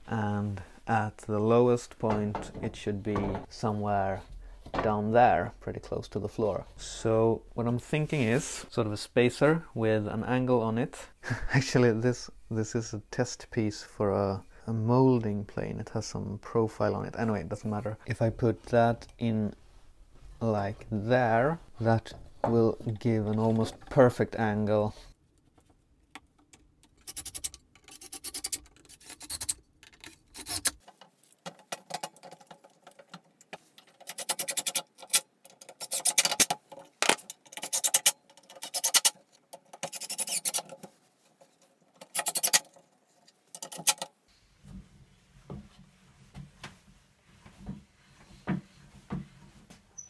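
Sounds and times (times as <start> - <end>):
faint handling sounds: 28.6 - 34.1, 40.6 - 49.9.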